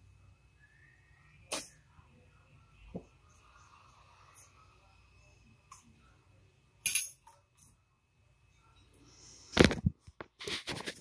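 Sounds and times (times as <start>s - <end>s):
metallic clink: 6.8s - 7.4s.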